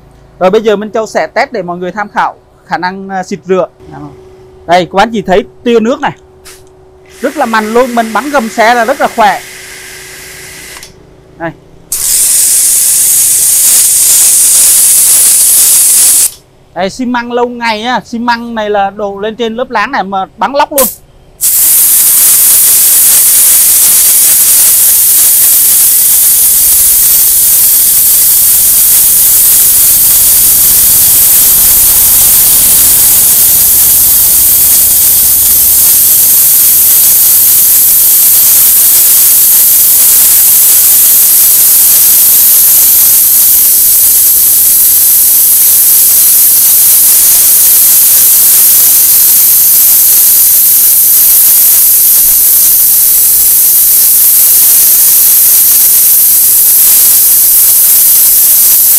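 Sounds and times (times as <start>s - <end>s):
pressure washer jet hissing: 6.4s - 10.9s, 11.9s - 16.4s, 20.8s - 58.9s.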